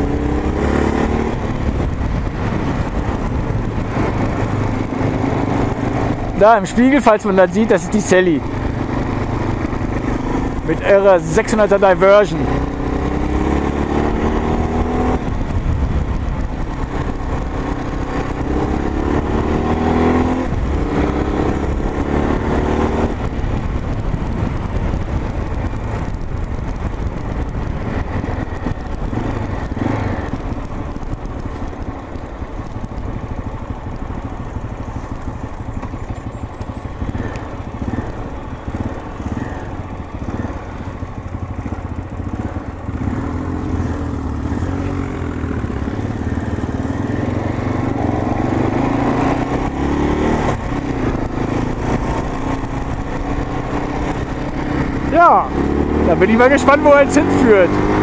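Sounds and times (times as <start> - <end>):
motorcycle engine accelerating: 0.0 - 58.0
road and wind noise: 0.0 - 58.0.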